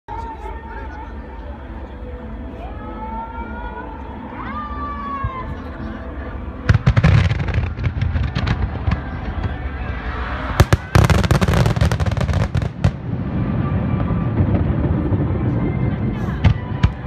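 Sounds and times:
fireworks bangs and crackles: 6.6s - 17.0s.

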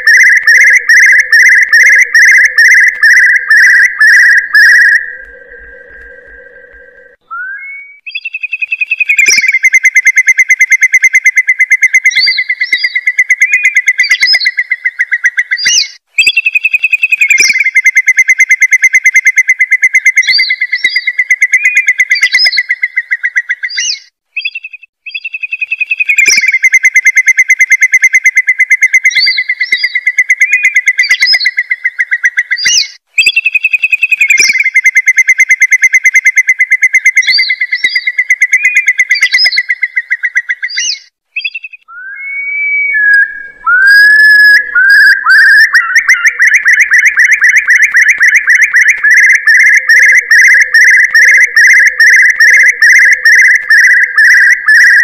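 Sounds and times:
curlew call trills: 0.0s - 10.0s, 36.4s - 55.0s
rising and falling whistles: 0.0s - 14.4s, 34.2s - 55.0s.

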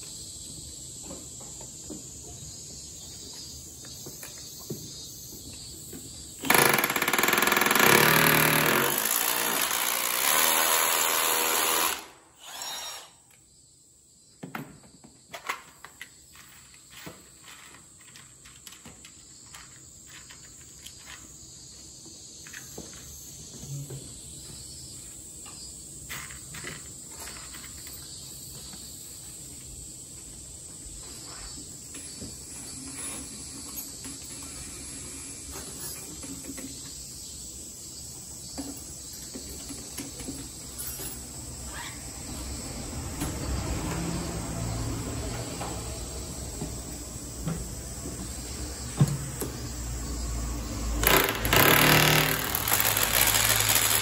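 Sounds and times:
power drill running: 6.4s - 13.2s, 51.0s - 54.0s.

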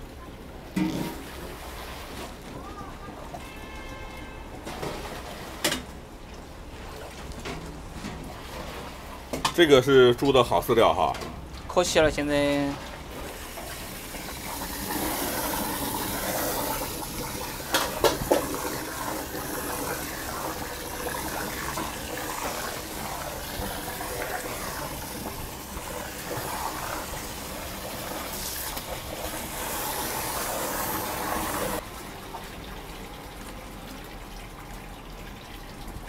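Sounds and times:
soy milk splashing and gushing: 11.8s - 36.0s.

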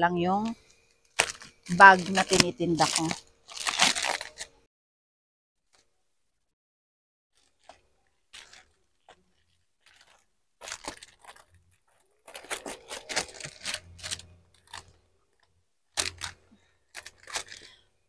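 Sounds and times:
plastic wrapper crinkling and tearing: 0.9s - 4.7s, 7.4s - 17.9s
scissors snipping plastic: 1.1s - 4.5s, 9.9s - 15.0s, 15.9s - 17.8s.

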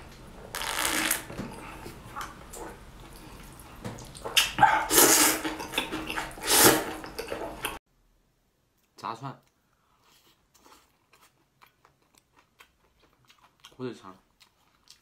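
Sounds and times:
wet slurping of noodles: 6.2s - 7.0s.

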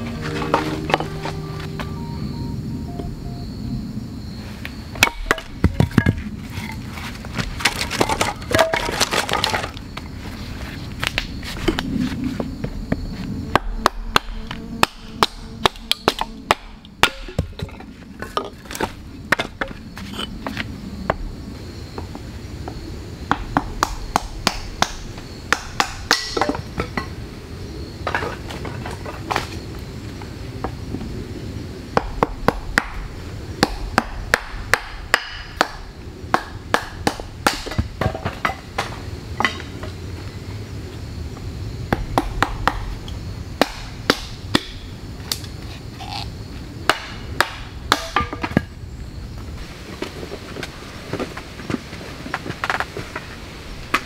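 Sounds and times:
hatchet chopping firewood: 13.5s - 19.7s, 23.3s - 26.6s, 32.0s - 33.0s, 33.6s - 39.6s, 43.6s - 45.4s, 46.9s - 48.6s.

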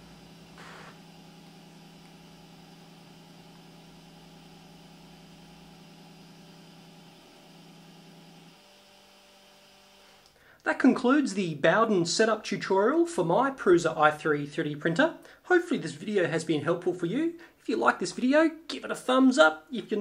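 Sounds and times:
stepper motor whine: 0.0s - 10.3s.

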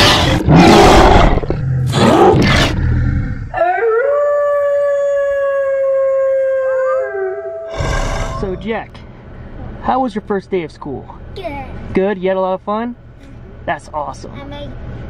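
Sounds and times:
harsh monster roars: 0.0s - 3.7s, 7.6s - 8.6s
werewolf howl: 3.5s - 8.4s.

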